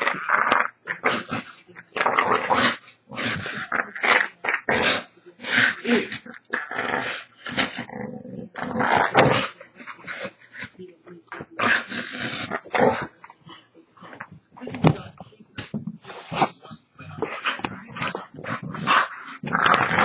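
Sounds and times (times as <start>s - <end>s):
dog play growling: 0.0s - 20.0s.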